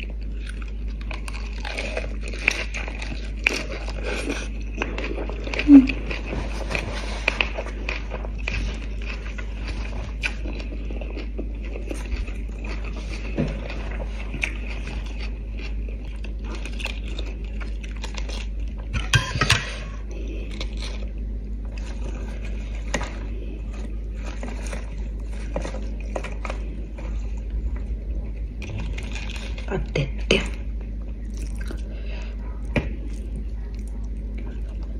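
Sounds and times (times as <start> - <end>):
person chewing food: 0.0 - 34.9
steady low hum: 0.0 - 34.9
lettuce leaves tearing: 0.4 - 18.9, 20.2 - 21.1, 28.6 - 30.1.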